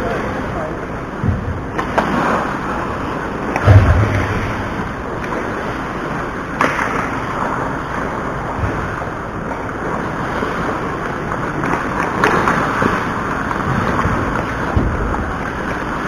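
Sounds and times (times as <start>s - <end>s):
sharp knocks: 3.6s - 4.8s.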